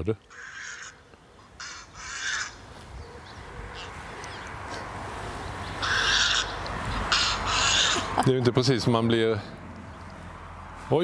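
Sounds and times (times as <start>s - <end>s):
heron calls played back: 0.3s - 1.0s, 1.6s - 2.6s, 5.8s - 8.2s.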